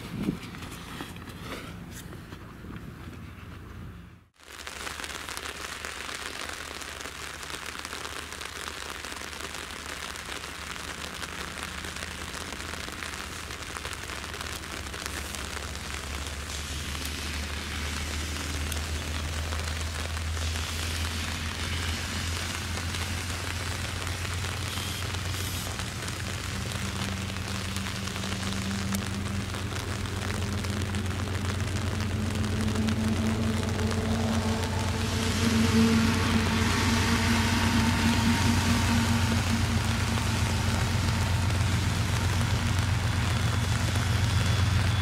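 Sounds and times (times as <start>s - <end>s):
steady rain falling: 4.3s - 45.0s
low rumble: 16.3s - 45.0s.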